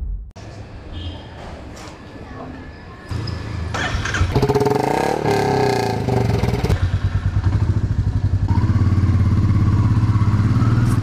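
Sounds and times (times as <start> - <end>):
motorcycle engine running: 3.1 - 11.0.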